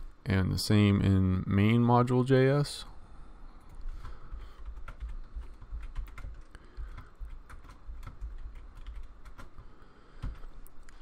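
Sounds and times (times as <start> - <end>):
computer keyboard typing: 3.7 - 10.9.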